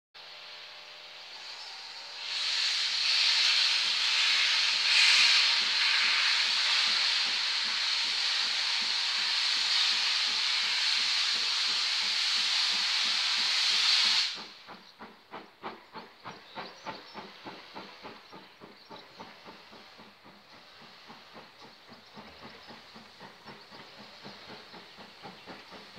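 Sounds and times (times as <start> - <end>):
steam hissing: 0.2 - 25.9
steam locomotive chuffing: 0.2 - 25.9.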